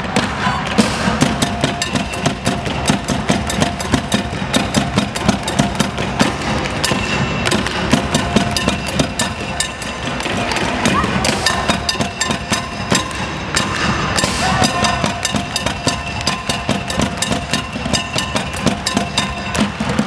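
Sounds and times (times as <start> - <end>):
bucket drums: 0.0 - 20.0
drum kit beating: 0.0 - 20.0.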